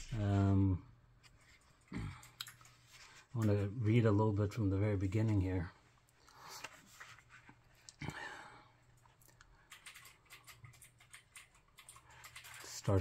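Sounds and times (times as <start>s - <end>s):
book pages turning: 6.4s - 7.9s.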